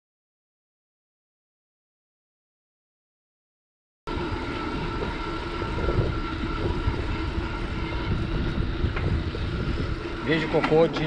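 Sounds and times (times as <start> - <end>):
steady thin whine: 4.1 - 11.0
wind rumbling on microphone: 4.1 - 11.0.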